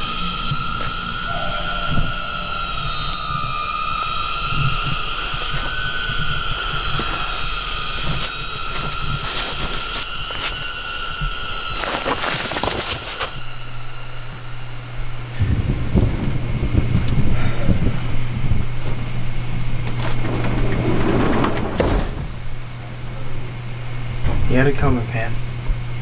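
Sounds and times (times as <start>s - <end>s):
high-pitched drone: 0.0s - 12.2s
rush of noise: 1.2s - 5.7s.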